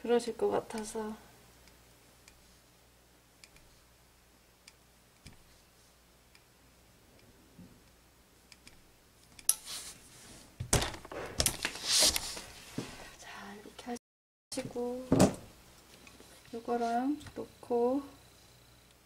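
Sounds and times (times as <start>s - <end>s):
iron thumping down: 10.6s - 11.7s.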